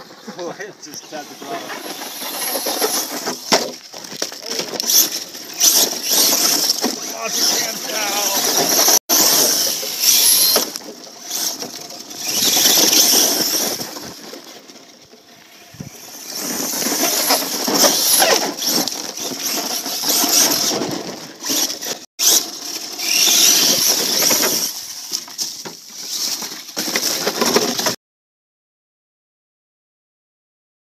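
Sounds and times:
tyres spraying dirt and gravel: 0.1s - 14.2s
electric motor whining: 23.0s - 24.3s.

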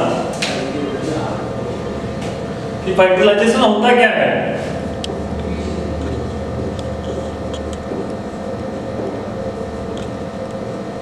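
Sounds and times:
deep drone: 0.0s - 11.0s
steady mechanical hum: 0.0s - 11.0s.

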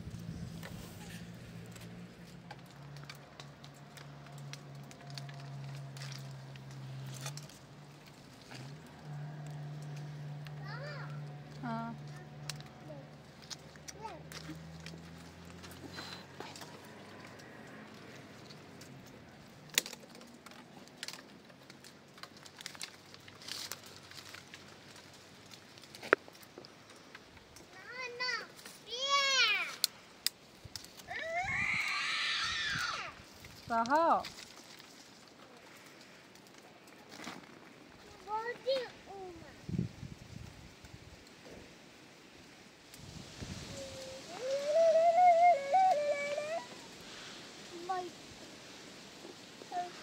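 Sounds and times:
leaves rustling: 0.0s - 50.0s
light clicks and crackles: 0.2s - 32.0s, 32.7s - 41.8s
clusters snapping off branches: 11.5s - 26.6s
faint background hiss: 32.8s - 50.0s.

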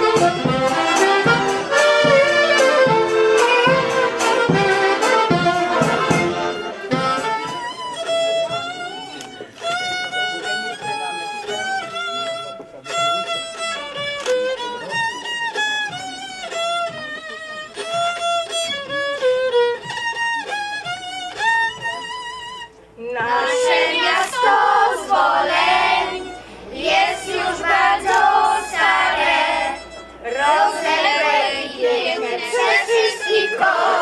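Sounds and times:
fiddle melody with vibrato: 0.0s - 34.0s
children and woman singing: 23.1s - 26.2s, 26.9s - 34.0s.

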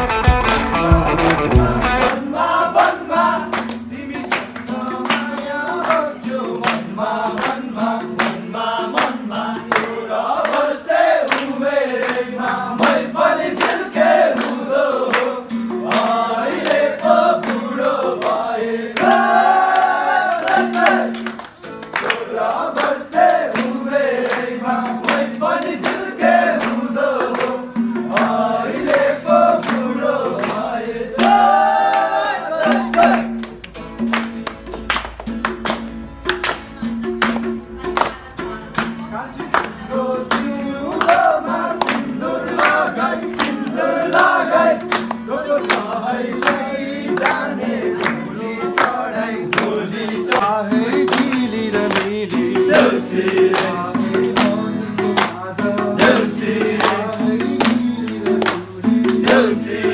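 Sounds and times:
sharp beats: 0.0s - 2.3s
group of voices singing: 0.0s - 33.6s, 35.8s - 59.9s
guitar accompaniment: 0.0s - 59.9s.

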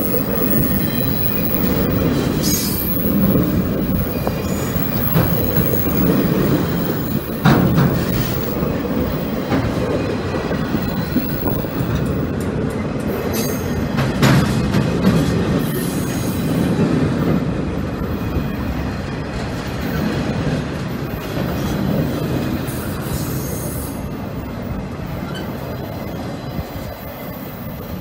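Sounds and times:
freight train wheels clattering on rails: 0.0s - 28.0s
faint wheel squeal: 25.1s - 26.5s.

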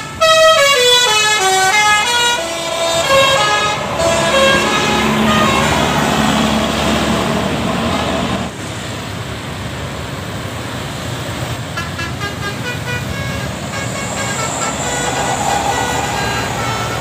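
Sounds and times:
bus horn playing melody: 0.0s - 6.6s, 11.7s - 17.0s
motorcycles and buses passing: 0.8s - 17.0s.

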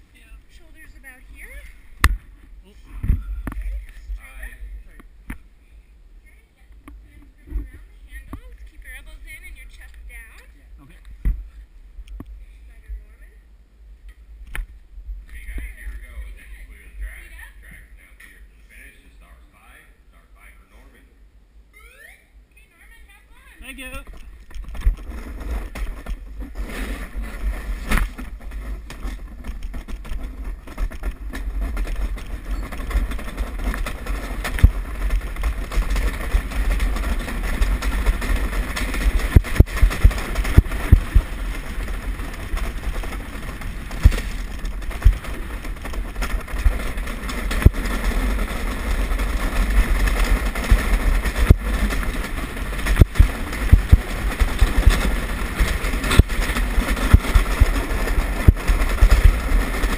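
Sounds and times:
wind and vibration rumble: 0.0s - 18.9s, 22.8s - 59.9s
sled knocking: 22.9s - 59.9s
sled runners scraping on ice: 23.7s - 59.9s.

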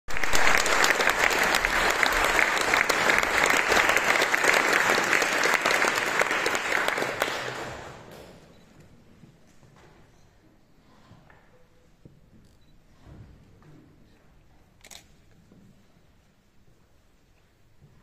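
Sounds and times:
audience applauding: 0.1s - 8.1s.

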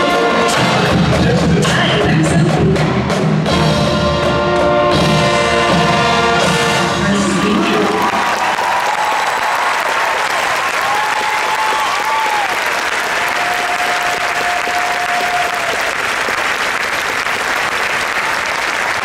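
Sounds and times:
audience applauding: 7.1s - 19.0s.

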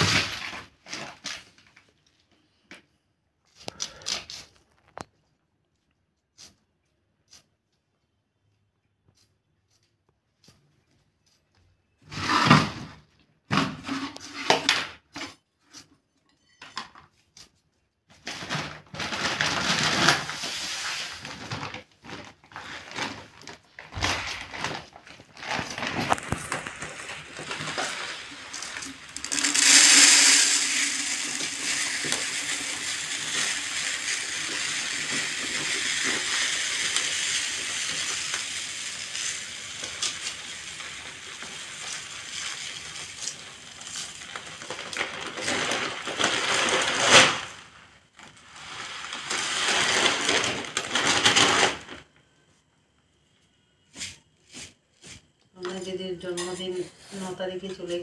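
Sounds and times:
cauliflower crunching and snapping: 23.4s - 28.2s.

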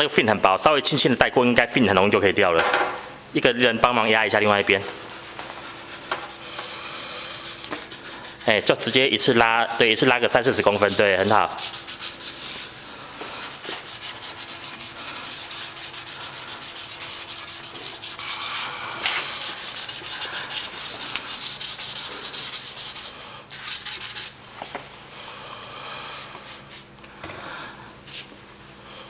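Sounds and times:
abrasive pad scrubbing metal: 4.6s - 24.3s.

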